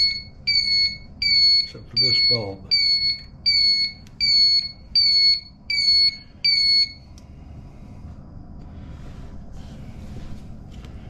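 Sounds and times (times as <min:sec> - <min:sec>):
turn-signal flasher beeping: 0:00.0 - 0:07.1.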